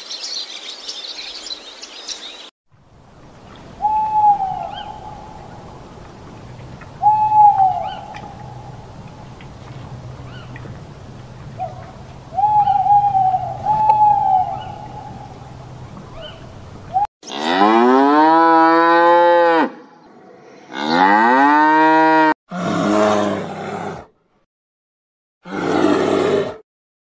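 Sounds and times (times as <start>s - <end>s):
owl whistled call: 3.8s - 5.6s, 7.0s - 8.8s, 11.6s - 15.5s
cattle mooing: 17.3s - 19.8s, 20.7s - 23.5s.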